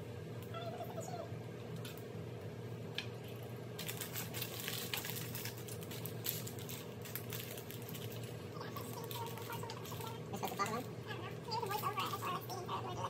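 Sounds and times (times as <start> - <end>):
plastic bag crinkling: 3.8 - 12.6.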